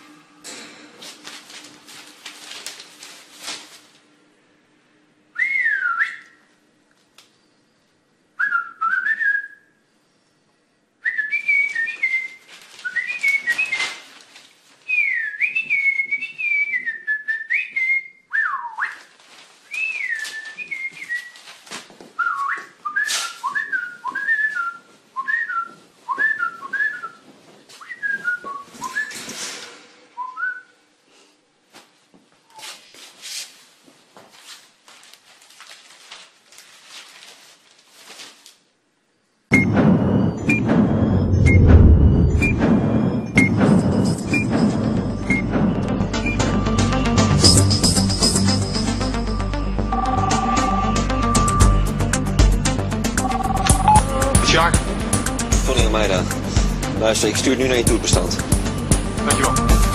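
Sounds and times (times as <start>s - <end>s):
paper or cloth rustling: 1.0s - 4.1s, 11.8s - 15.0s, 18.9s - 22.2s, 31.7s - 38.8s
person whistling bird-like chirps: 30.2s - 30.7s.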